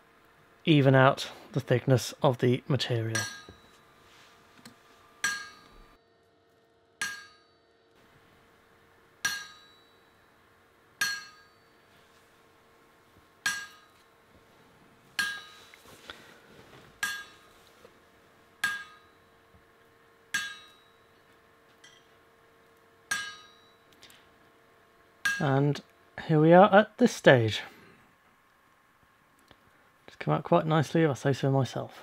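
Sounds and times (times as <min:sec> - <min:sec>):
hammer clanging on metal: 0:03.1 - 0:03.8, 0:05.2 - 0:05.9, 0:07.0 - 0:07.5, 0:09.2 - 0:10.2, 0:11.0 - 0:11.7, 0:13.4 - 0:14.0, 0:15.2 - 0:15.7, 0:17.0 - 0:17.5, 0:18.6 - 0:19.2, 0:20.3 - 0:22.2, 0:23.1 - 0:23.9, 0:25.2 - 0:25.6.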